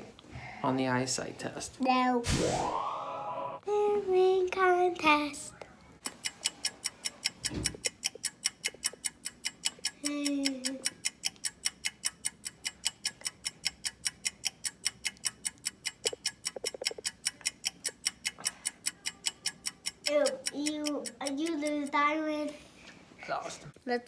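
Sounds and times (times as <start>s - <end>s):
hummed voice tone: 2.4s - 3.6s
fast clock ticking: 6.0s - 22.2s.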